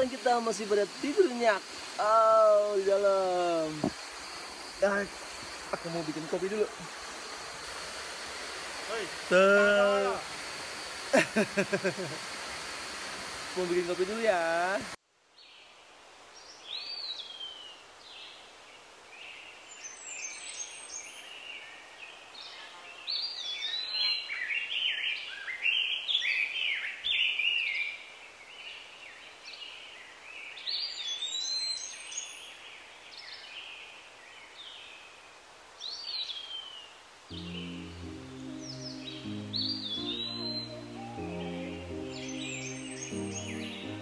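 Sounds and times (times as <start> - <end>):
faint steady hiss: 0.0 - 44.0
birds whistling calls: 37.4 - 44.0.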